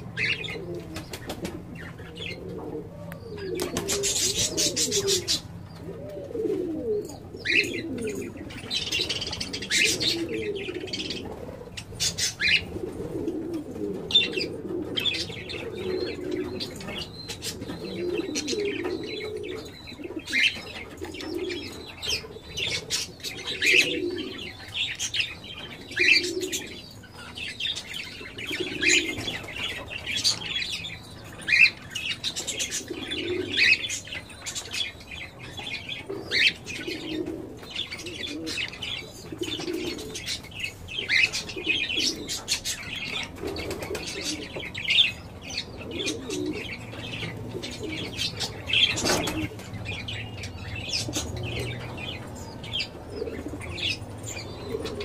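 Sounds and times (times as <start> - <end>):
low cooing: 0.0 - 24.6, 32.5 - 34.0, 45.8 - 49.6
birds chirping: 0.0 - 55.0.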